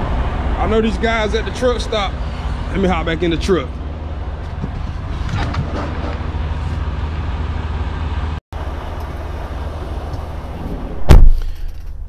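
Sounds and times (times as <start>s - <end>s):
diesel engine idling: 0.0s - 11.7s
knocks and rustles: 4.4s - 6.9s.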